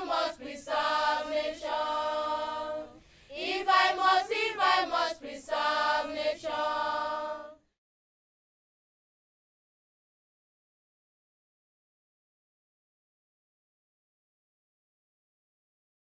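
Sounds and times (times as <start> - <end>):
children singing together: 0.0 - 7.6.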